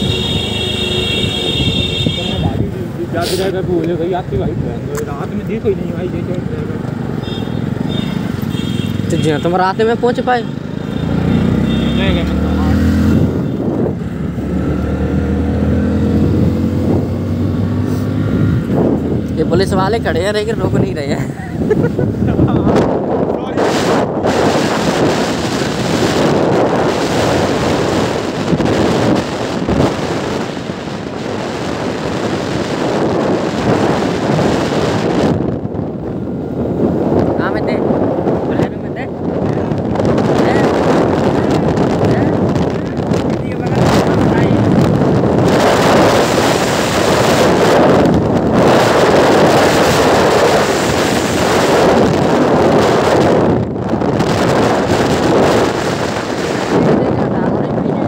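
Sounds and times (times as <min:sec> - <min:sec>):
motorcycle engine: 0:00.0 - 0:03.1, 0:05.3 - 0:20.7
wind buffeting microphone: 0:00.0 - 0:09.2, 0:10.7 - 0:58.0
road noise: 0:00.0 - 0:58.0.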